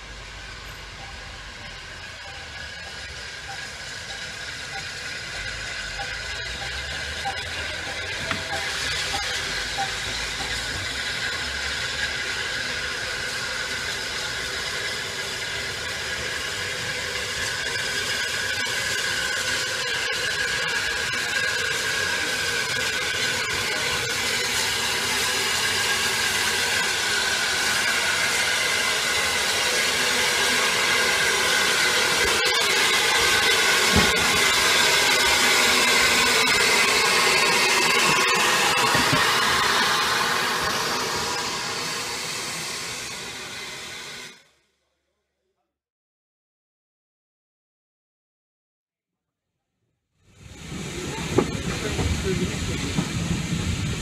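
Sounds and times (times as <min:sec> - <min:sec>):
steam locomotive hissing: 0:00.0 - 0:44.5, 0:50.2 - 0:54.0.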